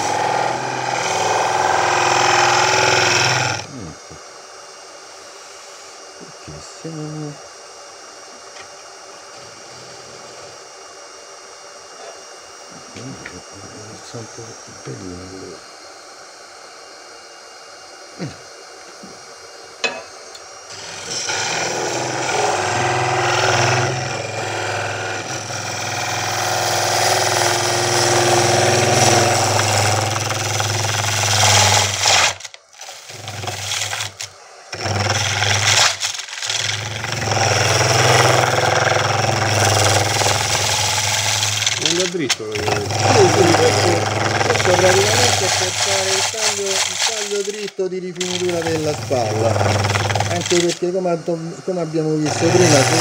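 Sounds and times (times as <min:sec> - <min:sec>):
tool cutting wood on a lathe: 0:00.0 - 0:04.2, 0:19.0 - 0:53.0.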